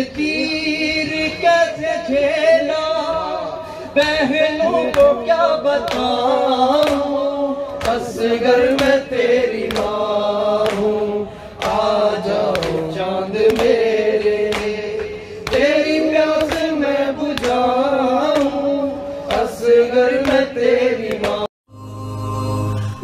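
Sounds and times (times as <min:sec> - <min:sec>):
man singing a lament: 0:00.0 - 0:21.5
sharp rhythmic thumps: 0:04.0 - 0:21.5.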